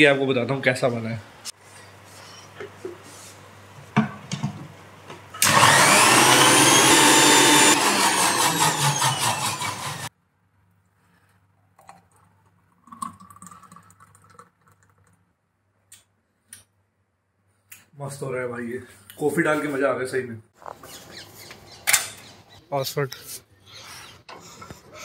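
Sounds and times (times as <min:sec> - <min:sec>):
electric blender whirring: 0:05.4 - 0:10.1.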